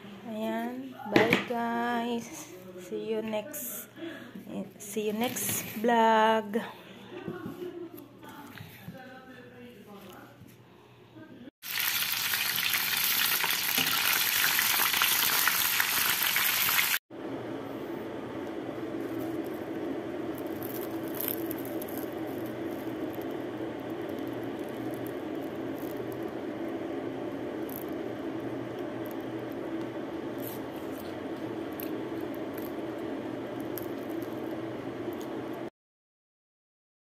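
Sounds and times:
pastry shell crackling: 20.2 - 26.8.

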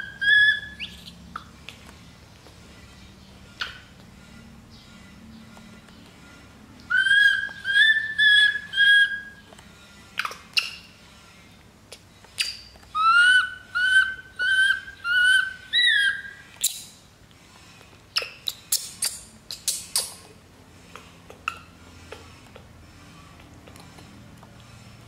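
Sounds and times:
infant monkey shrill squeaks: 0.0 - 1.2, 6.9 - 9.4, 10.2 - 10.9, 12.4 - 16.9
infant monkey whistle-like calls: 0.0 - 1.2, 6.9 - 9.5, 10.2 - 10.9, 12.4 - 17.0.

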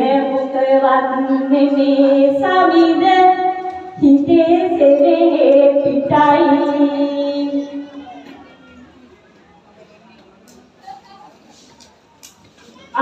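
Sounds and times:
woman singing into a microphone: 0.0 - 7.8.

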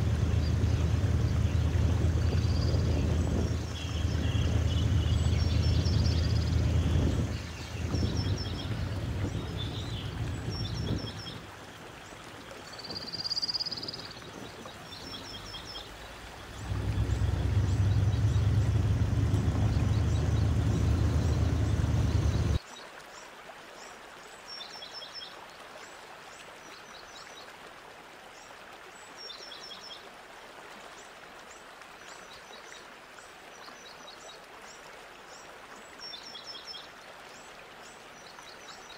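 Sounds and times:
loud low rumble: 0.0 - 11.2, 16.5 - 22.6
small birds chirping: 0.0 - 11.5, 12.8 - 22.6.

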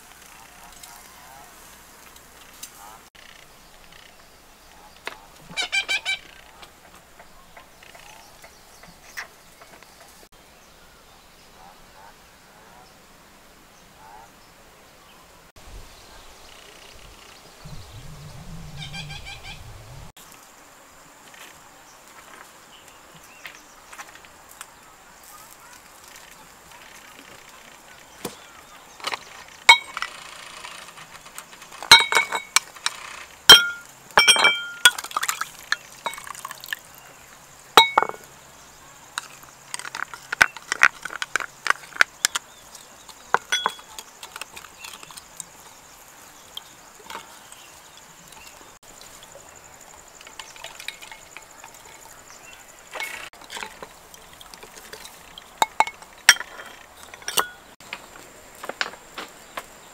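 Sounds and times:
spoon clinking against ceramic bowl: 29.7 - 30.0, 31.9 - 32.6, 33.5 - 35.4, 36.0 - 36.5, 37.8 - 38.2, 43.4 - 44.0, 50.3 - 52.1, 54.6 - 57.6.

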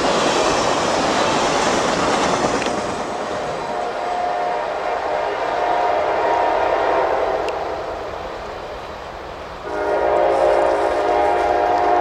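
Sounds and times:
locomotive air horn blasts: 3.6 - 7.9, 9.6 - 12.0.

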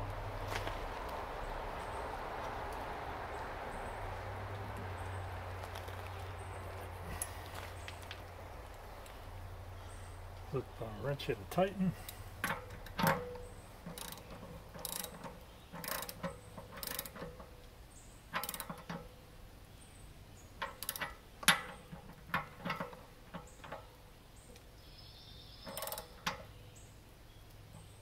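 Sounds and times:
ratchet wrench clicking: 12.1 - 17.5, 18.3 - 19.0, 20.6 - 22.9, 25.7 - 26.4.

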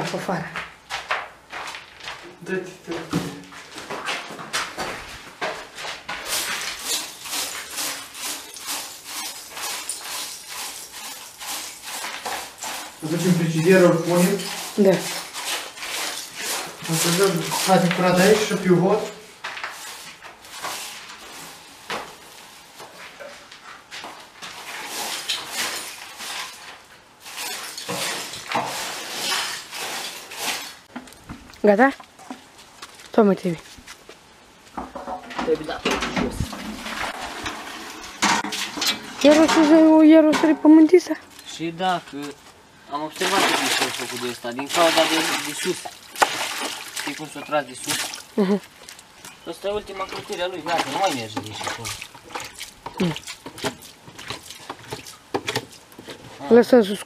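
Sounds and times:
broom sweeping: 5.9 - 18.6, 19.6 - 30.9
brush scrubbing a surface: 6.2 - 18.6, 27.3 - 30.9.

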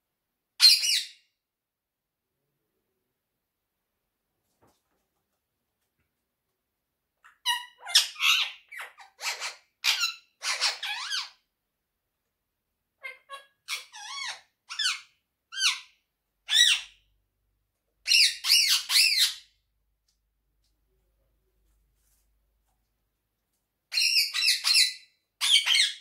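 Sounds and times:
parakeet calling: 7.2 - 11.4, 13.0 - 15.9, 18.0 - 19.4, 23.9 - 26.0.

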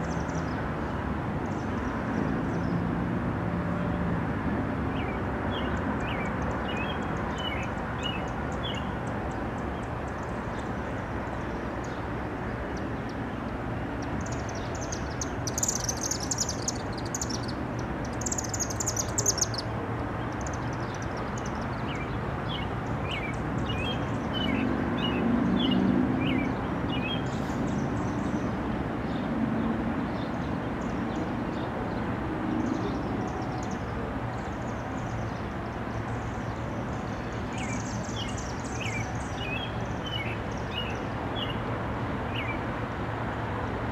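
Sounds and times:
songbirds chirping: 4.8 - 43.7
high-pitched birdsong: 5.0 - 29.3, 32.6 - 41.6.

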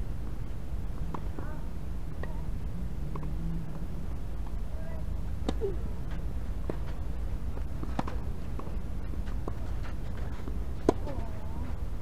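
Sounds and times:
tennis ball knocks: 10.4 - 11.4.

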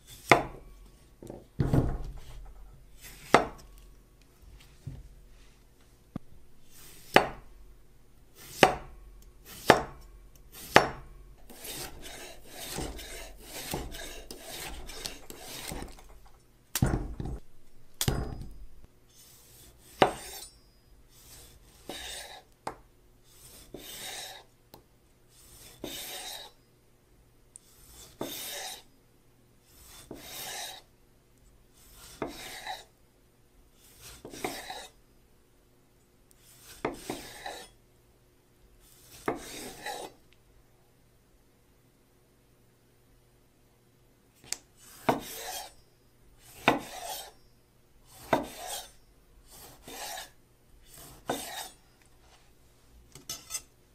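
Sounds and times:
knife chopping on wooden board: 0.2 - 0.6, 3.2 - 3.6, 7.0 - 7.4, 8.4 - 16.1, 19.9 - 20.4, 36.8 - 37.6, 45.0 - 45.6, 46.6 - 47.2, 48.2 - 48.9
dull thumps: 1.2 - 3.6, 14.6 - 18.8
knife rasping through tomato: 8.4 - 10.9, 11.5 - 16.2, 21.1 - 22.5, 23.3 - 24.5, 25.3 - 26.6, 29.7 - 30.9, 31.8 - 32.9, 33.8 - 35.0, 36.4 - 37.8, 38.8 - 40.2, 44.8 - 45.7, 46.4 - 47.4, 48.1 - 51.8.

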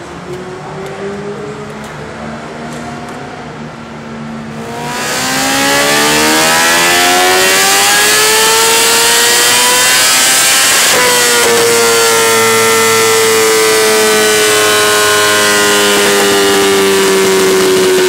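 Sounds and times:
motorcycle engine revving: 4.4 - 18.0.

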